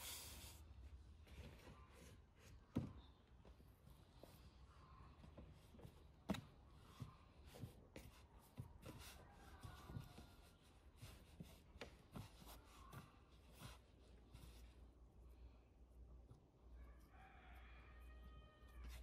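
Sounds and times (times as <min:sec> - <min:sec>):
hands kneading dough: 0:00.0 - 0:19.0.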